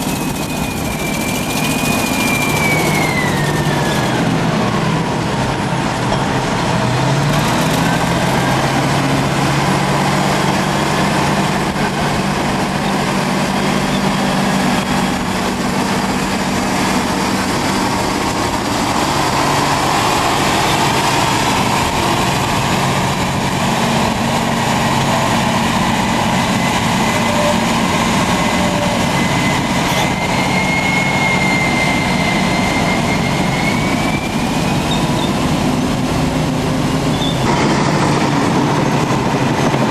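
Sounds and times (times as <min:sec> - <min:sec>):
heavy diesel engines droning: 0:00.0 - 0:39.9
thin high squeal: 0:28.5 - 0:35.4.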